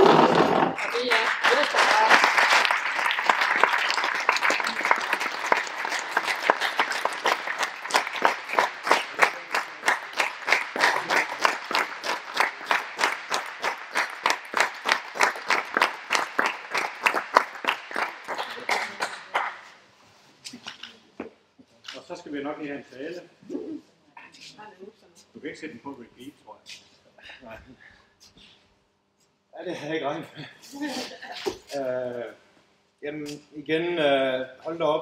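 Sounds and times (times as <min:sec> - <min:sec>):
audience applauding: 0:00.0 - 0:19.7.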